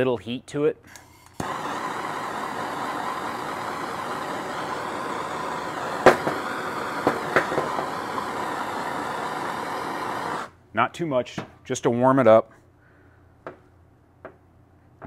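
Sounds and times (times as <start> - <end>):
gas torch hissing: 1.2 - 10.6.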